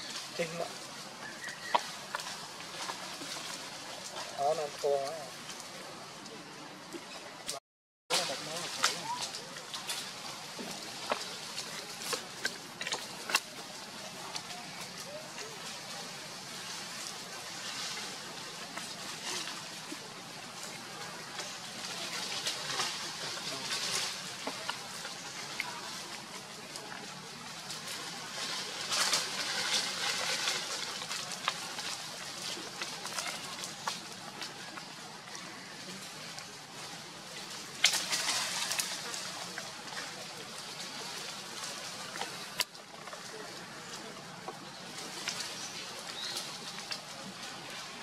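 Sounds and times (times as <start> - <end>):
dry leaves rustling and crackling: 0.0 - 7.5, 8.1 - 48.0.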